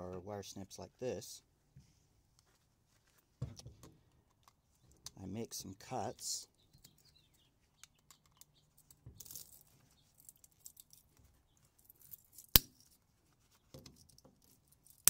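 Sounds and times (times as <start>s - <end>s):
faint clicks and rustles: 1.7s - 5.2s, 6.7s - 15.0s.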